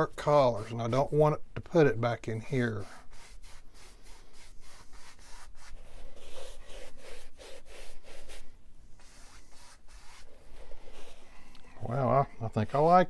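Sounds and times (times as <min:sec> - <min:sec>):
brush scrubbing paint on canvas: 0:02.5 - 0:11.5.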